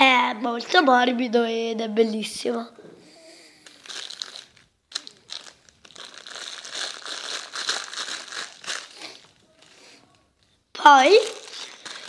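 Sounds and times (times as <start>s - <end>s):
plastic bag crinkling: 3.6s - 10.0s, 11.0s - 12.0s.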